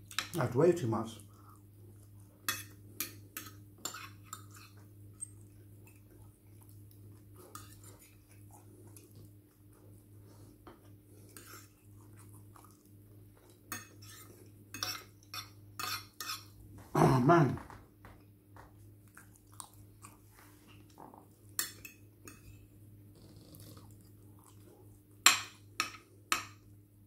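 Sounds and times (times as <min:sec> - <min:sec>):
low steady hum: 0:00.0 - 0:27.0
cutlery clinking against dishes: 0:02.5 - 0:05.4, 0:13.7 - 0:16.5, 0:25.3 - 0:26.6.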